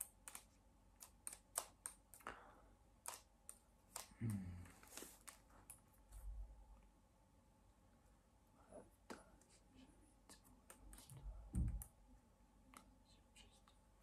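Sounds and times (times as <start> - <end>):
hands handling a notebook: 4.7 - 5.7.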